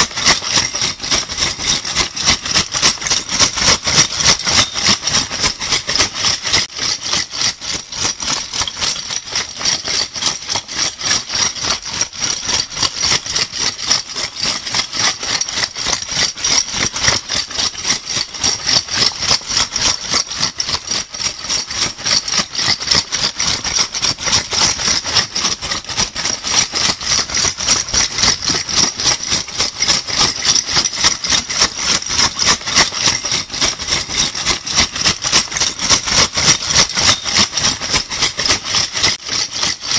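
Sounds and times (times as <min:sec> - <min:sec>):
metal bottle caps rattling: 0:00.0 - 0:06.7, 0:27.2 - 0:39.9.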